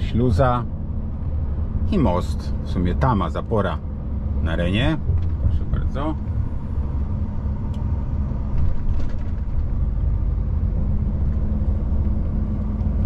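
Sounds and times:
diesel truck engine droning: 0:00.0 - 0:13.0
road noise: 0:00.0 - 0:13.0.

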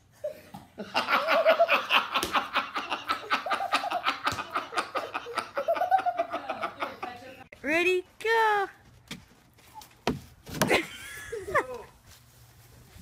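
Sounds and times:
man and boy laughing: 0:00.2 - 0:07.3, 0:10.6 - 0:12.0.

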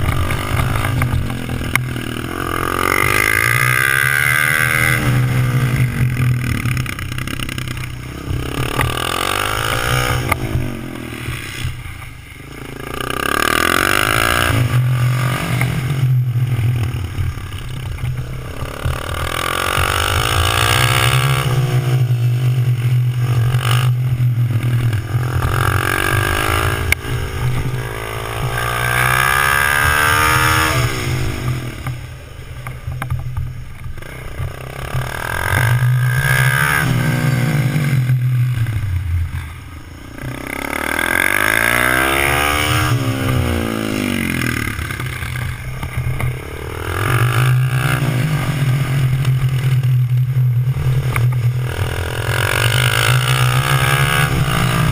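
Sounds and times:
mini motorcycle engine revving: 0:40.1 - 0:54.9.

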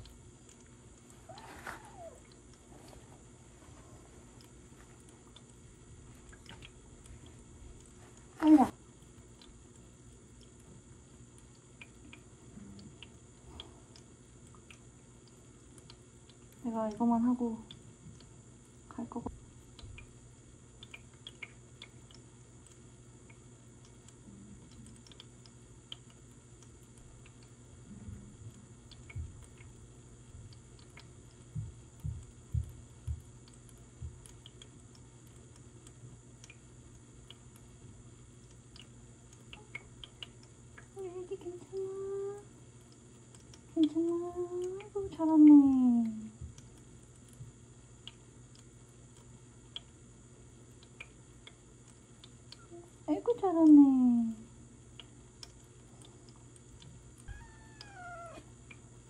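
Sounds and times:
low steady hum: 0:00.0 - 0:59.0
faint small clicks: 0:17.6 - 0:18.3, 0:20.8 - 0:29.9, 0:30.5 - 0:37.7, 0:38.4 - 0:50.0, 0:54.9 - 0:58.8
soft low thumps: 0:31.5 - 0:33.4.

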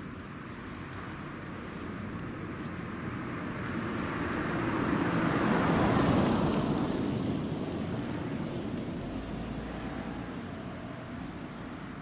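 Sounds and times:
passing vehicle rushing: 0:03.6 - 0:11.4.

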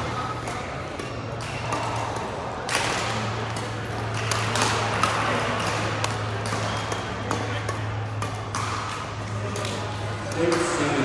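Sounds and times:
racket hitting shuttlecock: 0:00.0 - 0:11.0.

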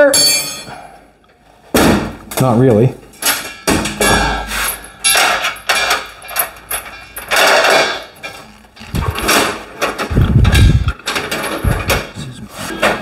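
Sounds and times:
metal clanks and knocks: 0:01.7 - 0:13.0
heavy low thumps: 0:10.1 - 0:11.0.

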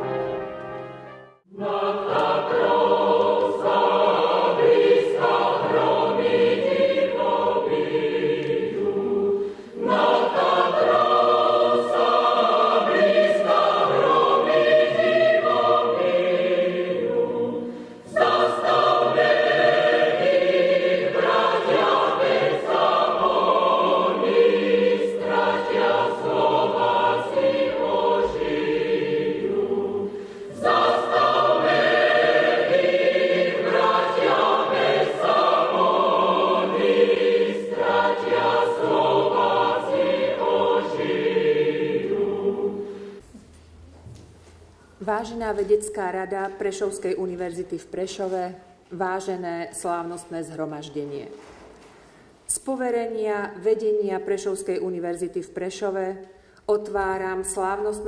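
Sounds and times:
choir singing solemn anthem: 0:00.0 - 0:43.2.

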